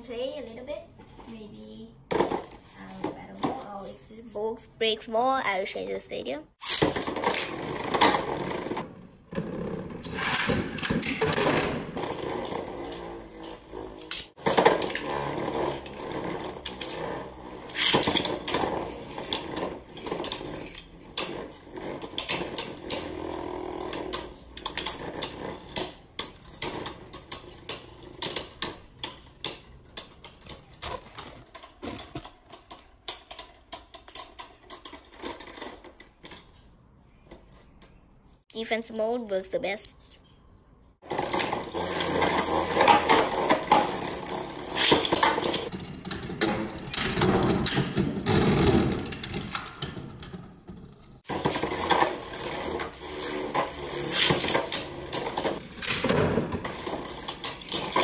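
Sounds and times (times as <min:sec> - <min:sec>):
spinning tops whirring: 0:41.0 - 0:45.7, 0:51.3 - 0:58.0.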